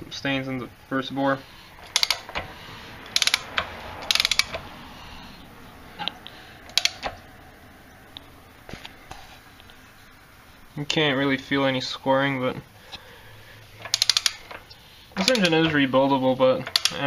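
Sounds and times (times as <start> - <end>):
faint steady hiss: 0.0 - 17.0
mechanical clicking and rattling: 1.8 - 4.7, 6.0 - 7.2, 13.7 - 15.9, 16.5 - 17.0.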